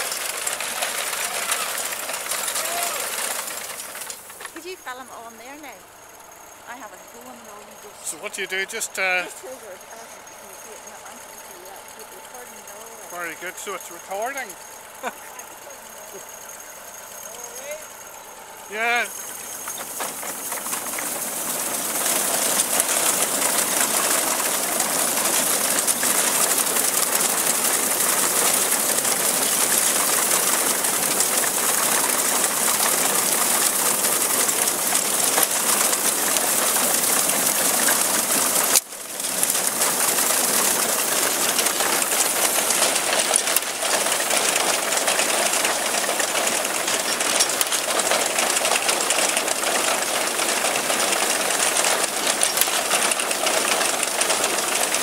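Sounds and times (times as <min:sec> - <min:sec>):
farm machine mechanical clatter: 0:00.0 - 0:55.0.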